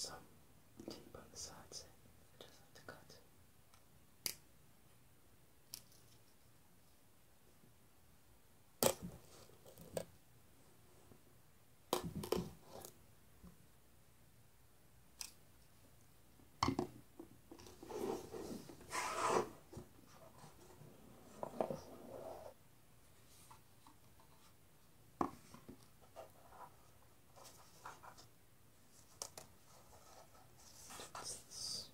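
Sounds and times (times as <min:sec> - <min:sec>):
cardboard rubbing and scraping: 0:17.8 - 0:20.6.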